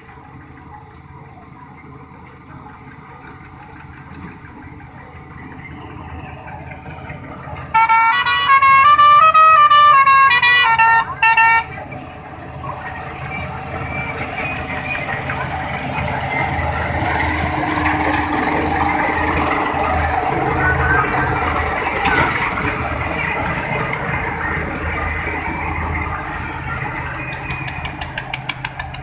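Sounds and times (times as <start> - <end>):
heavy machine engine running: 0.0 - 29.0
musical vehicle horn tune: 7.7 - 11.8.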